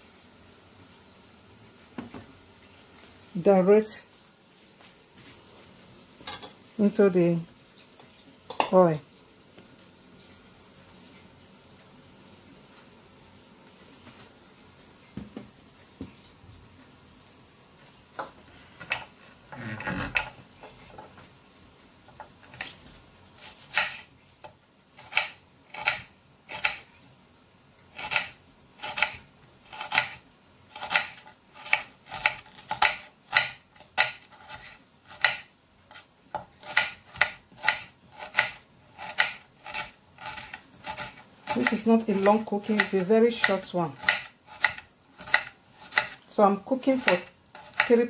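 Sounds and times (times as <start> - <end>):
knife chopping on wooden board: 23.5 - 24.0, 30.8 - 35.5, 36.3 - 46.2, 47.0 - 48.0.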